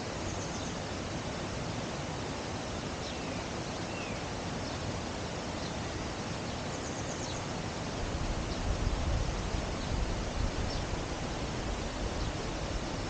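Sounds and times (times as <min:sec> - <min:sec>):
faint bird chirps: 0:00.0 - 0:01.0, 0:03.0 - 0:04.8, 0:06.4 - 0:07.6
steady rushing outdoor noise: 0:00.0 - 0:13.0.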